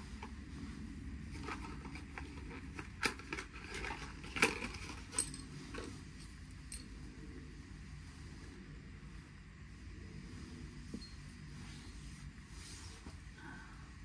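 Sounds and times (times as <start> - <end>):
metal tools clinking: 3.6 - 7.0.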